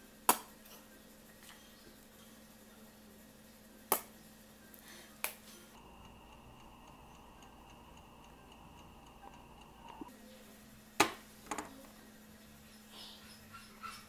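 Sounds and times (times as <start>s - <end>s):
electric oven humming: 1.0s - 12.9s
fast faint regular ticking: 5.8s - 10.1s.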